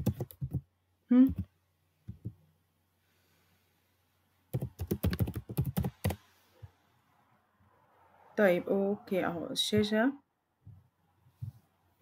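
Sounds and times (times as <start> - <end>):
computer keyboard typing: 0.0 - 0.6, 4.5 - 6.2.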